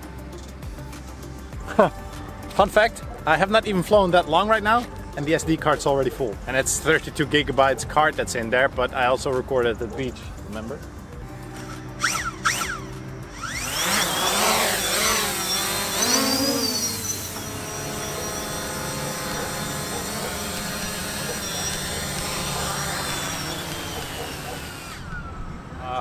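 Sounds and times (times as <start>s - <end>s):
drone propellers whining: 11.1s - 26.0s.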